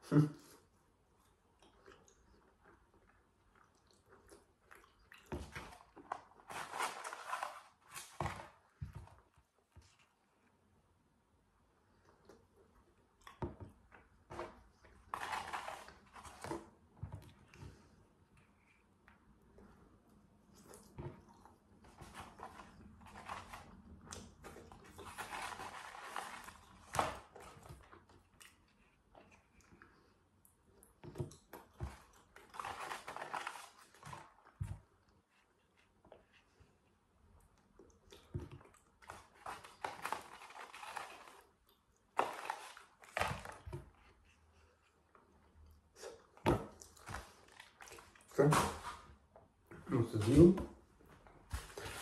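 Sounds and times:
person chewing fries: 0.5s - 6.4s, 23.6s - 36.5s
cardboard carton rustling: 5.4s - 9.0s, 14.3s - 16.8s, 21.9s - 27.9s, 32.6s - 34.3s, 39.1s - 41.4s, 51.5s - 52.0s.

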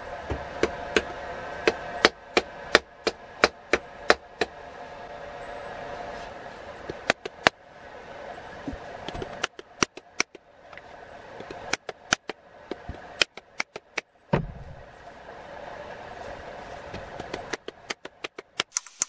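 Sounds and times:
faint steady hum: 0.0s - 19.0s
heavy thud: 14.3s - 14.9s.

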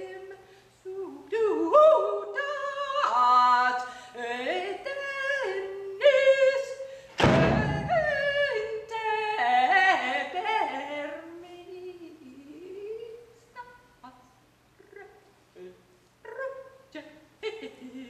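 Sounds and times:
woman singing: 0.0s - 18.0s
bass drum hit: 7.2s - 8.4s.

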